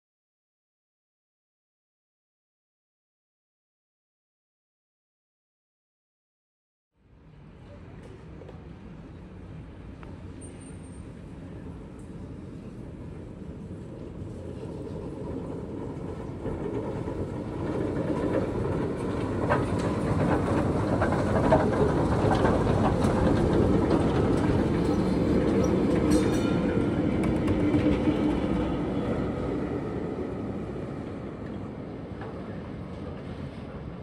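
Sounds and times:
tram wheels rumbling: 7.1s - 34.0s
wheels knocking on rails: 15.7s - 28.9s.

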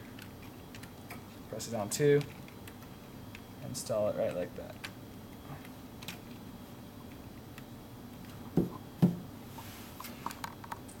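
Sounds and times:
dull thumps: 8.6s - 9.3s.

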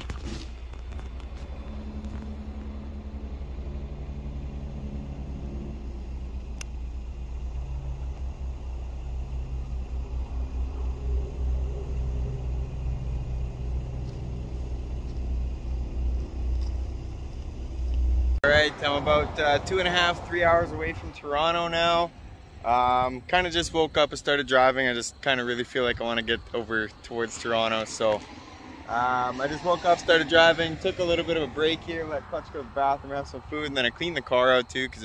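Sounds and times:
car engine and road rumble: 0.0s - 35.0s.

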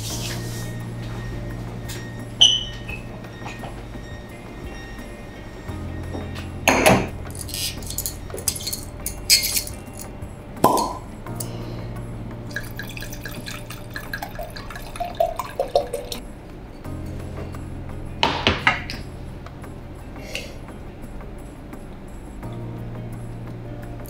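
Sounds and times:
bottle clinking on glass: 6.1s - 11.1s
wine glugging into glass: 10.6s - 11.1s, 12.5s - 16.2s.

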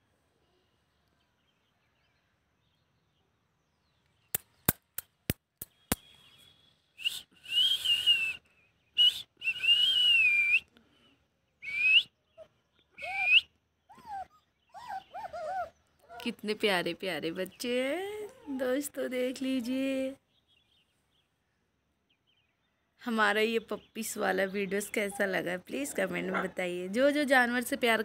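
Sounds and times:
quick sharp clicks: 4.3s - 6.1s
person whistling short notes: 7.0s - 10.7s.

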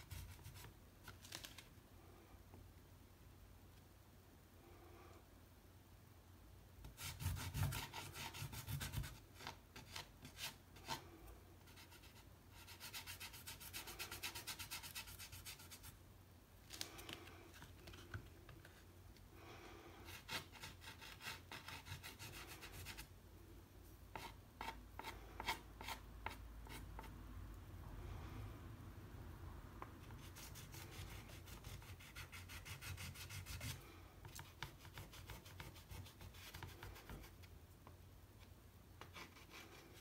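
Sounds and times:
pastel scratching on paper: 7.0s - 11.0s, 11.6s - 16.0s, 20.0s - 23.1s, 30.1s - 37.4s.

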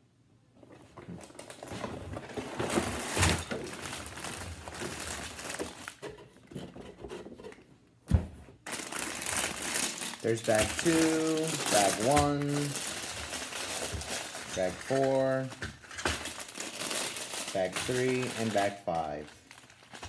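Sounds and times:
plastic bags and cardboard rustling: 0.6s - 20.0s.

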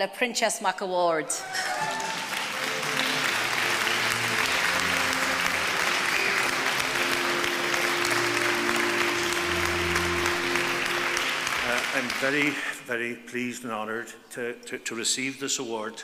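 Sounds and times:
audience applauding: 1.4s - 12.8s.

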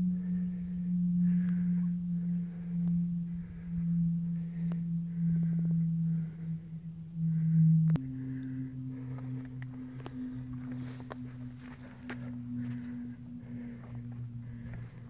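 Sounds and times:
low humming tone: 0.0s - 15.0s.

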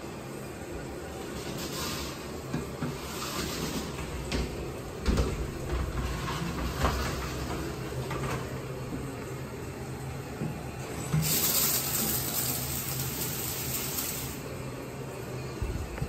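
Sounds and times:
sliding door rumbling along track: 1.3s - 8.8s.

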